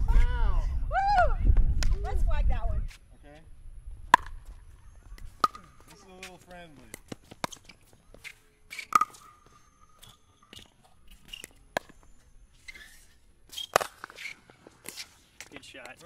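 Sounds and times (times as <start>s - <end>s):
paddles hitting plastic ball: 4.1s - 6.0s, 13.6s - 16.0s.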